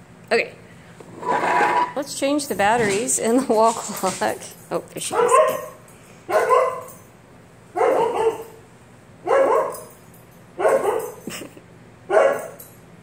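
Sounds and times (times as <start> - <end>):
dog play barking: 5.1 - 7.0, 7.7 - 8.6, 9.2 - 10.0, 10.6 - 11.3, 12.1 - 12.7.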